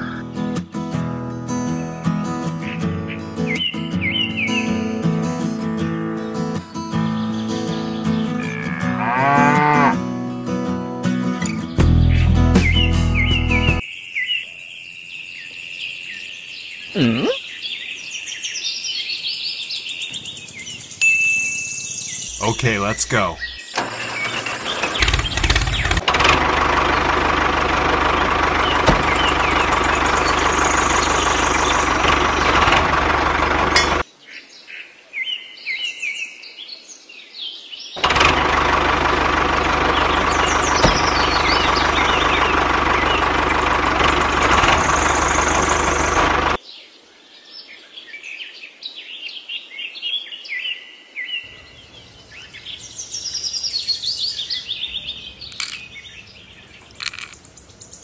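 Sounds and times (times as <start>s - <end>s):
birds chirping: 0.0s - 0.6s, 2.4s - 10.0s, 11.4s - 34.7s, 37.9s - 46.9s, 51.3s - 58.0s
tractor engine running: 11.8s - 13.8s, 22.3s - 34.0s, 38.0s - 46.6s, 54.7s - 57.8s.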